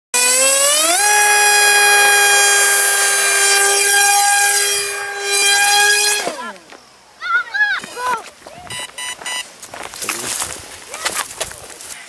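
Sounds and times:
model plane motor whining: 0:00.2 - 0:06.4.

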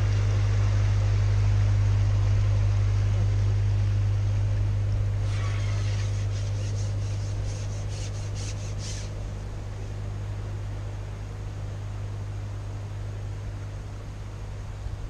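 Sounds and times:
boat engine humming: 0:00.0 - 0:15.0
scratchy rubbing: 0:05.2 - 0:09.2.

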